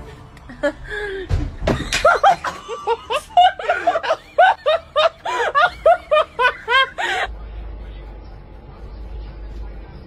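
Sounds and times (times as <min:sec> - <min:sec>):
person laughing: 0:01.8 - 0:07.3.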